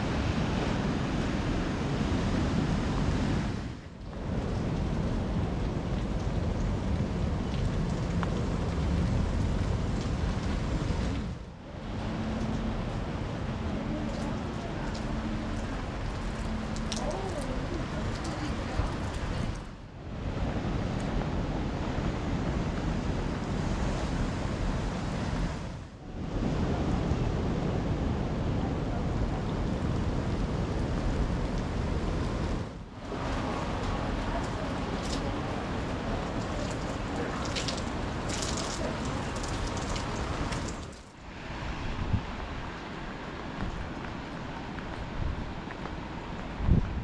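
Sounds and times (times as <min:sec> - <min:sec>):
rain: 0:00.0 - 0:47.0
wind buffeting microphone: 0:00.0 - 0:47.0
waves breaking on rocks: 0:33.0 - 0:41.7.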